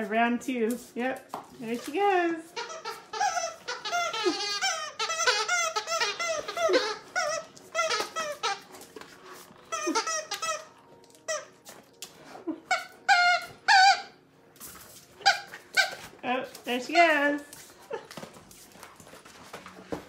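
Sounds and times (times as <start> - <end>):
squeaky dog toy squeaking: 2.5 - 9.0, 9.6 - 11.7, 12.6 - 14.2, 15.1 - 16.2.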